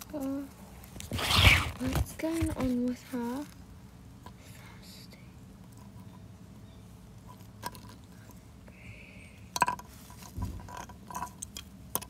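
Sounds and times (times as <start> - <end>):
plastic toys clicking on concrete: 7.3 - 8.4, 9.4 - 9.9, 10.7 - 12.0
dull thump: 10.4 - 10.7.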